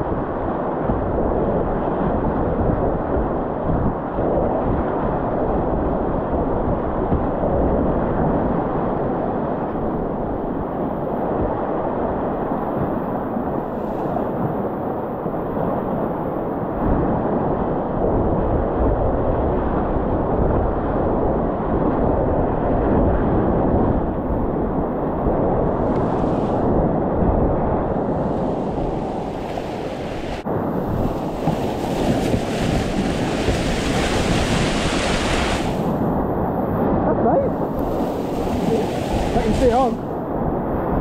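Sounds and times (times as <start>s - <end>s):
wind buffeting microphone: 0.0s - 41.0s
rushing whitewater: 28.0s - 30.4s, 31.0s - 36.0s, 37.6s - 40.1s.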